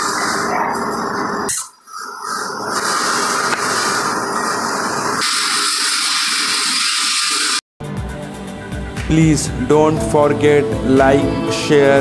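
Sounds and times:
factory machinery noise: 0:00.0 - 0:07.6.

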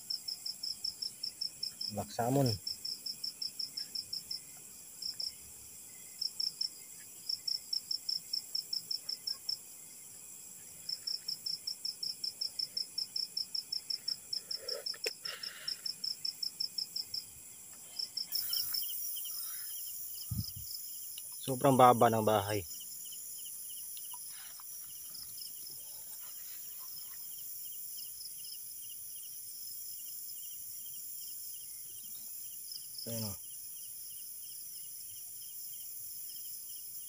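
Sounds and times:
cricket chirping: 0:00.0 - 0:37.0
rustle: 0:22.8 - 0:37.0.

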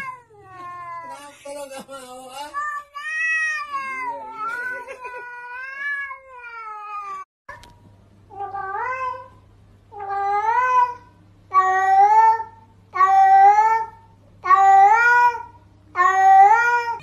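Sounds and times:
cat meowing: 0:02.5 - 0:07.3, 0:09.9 - 0:17.0.

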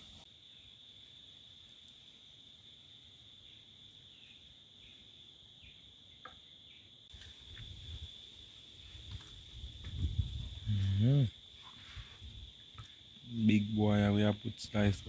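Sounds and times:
insects droning: 0:00.0 - 0:15.0
faint chirps: 0:03.1 - 0:07.6, 0:10.6 - 0:15.0
soft low bumps and knocks: 0:09.1 - 0:10.6.

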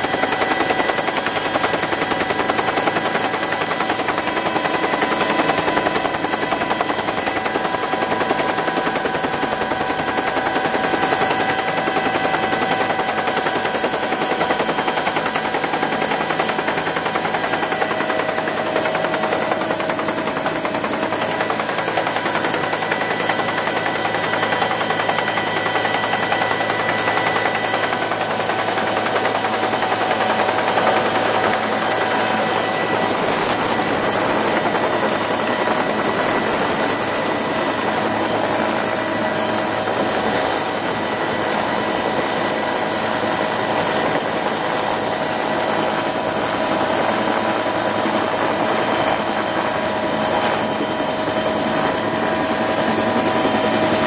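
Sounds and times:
helicopter rotor blades beating: 0:00.0 - 0:54.0
turbine whine: 0:03.5 - 0:45.1.

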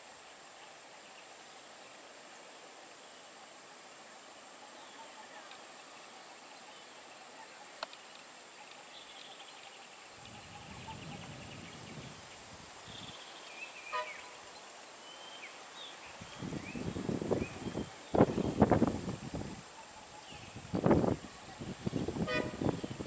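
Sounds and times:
bird chirps and whistles: 0:13.8 - 0:14.3.

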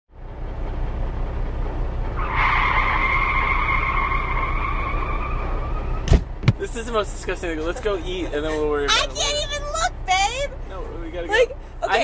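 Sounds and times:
low vehicle rumble: 0:00.1 - 0:12.0
high squeal: 0:02.2 - 0:06.0.

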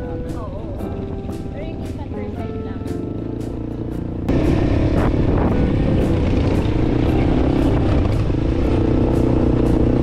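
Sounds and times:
background music with steady beat: 0:00.0 - 0:10.0
car engine and tyre noise: 0:03.0 - 0:10.0.

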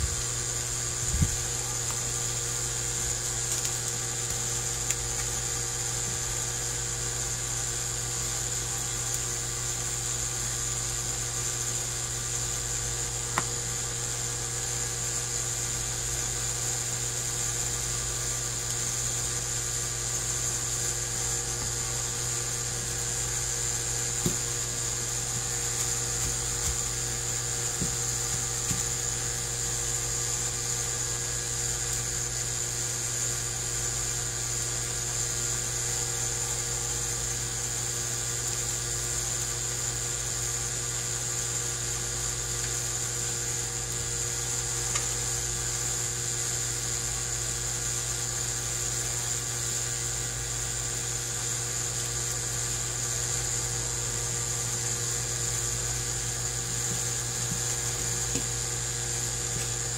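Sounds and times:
electric motor humming with whine: 0:00.0 - 0:41.2, 0:41.8 - 0:59.9.

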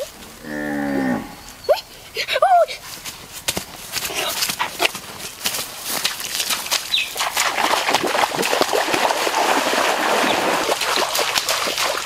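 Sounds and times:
person running through water splashing: 0:03.5 - 0:12.0.

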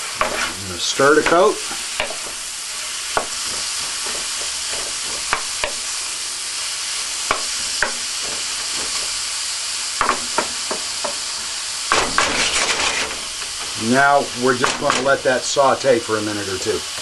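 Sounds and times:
wooden spoon scraping a pan: 0:00.0 - 0:05.9, 0:11.9 - 0:15.2
vegetables sizzling in a pan: 0:00.0 - 0:17.0.

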